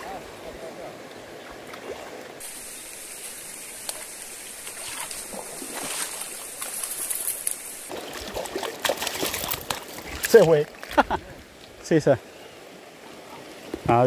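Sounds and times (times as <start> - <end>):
river water running over stones: 0.0 - 14.0
fish splashing in water: 1.7 - 10.5.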